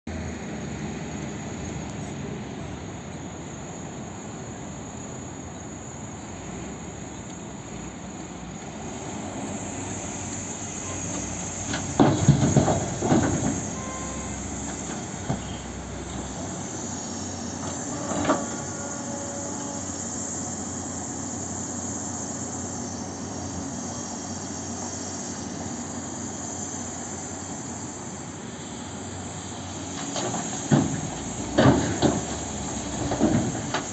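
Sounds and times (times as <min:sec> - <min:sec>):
excavator diesel engine running: 0:00.1 - 0:33.9
hydraulics working: 0:02.4 - 0:33.9
earth and rock crashing into truck: 0:11.5 - 0:15.7, 0:30.0 - 0:33.9.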